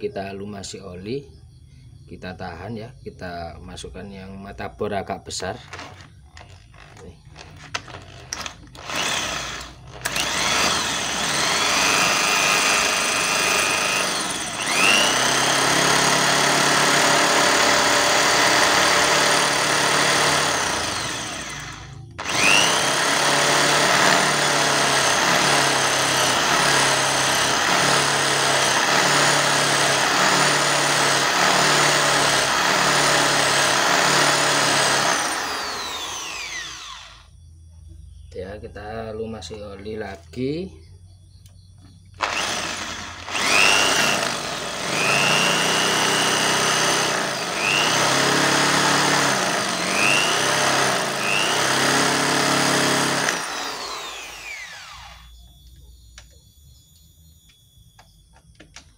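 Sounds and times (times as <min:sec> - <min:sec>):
electric drill boring through steel: 0:05.6 - 0:37.3, 0:42.2 - 0:55.4.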